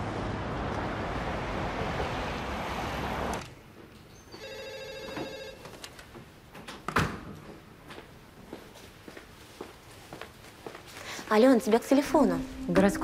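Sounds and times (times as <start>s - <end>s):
telephone ringing: 4.3s - 5.8s.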